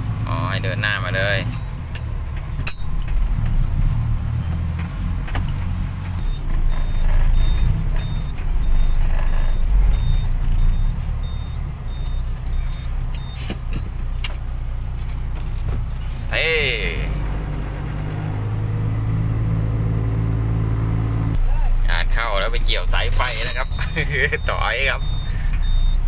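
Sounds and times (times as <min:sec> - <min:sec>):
diesel truck engine running: 0:00.0 - 0:26.0
high electronic beep: 0:02.7 - 0:04.6, 0:06.2 - 0:13.5, 0:23.1 - 0:26.0.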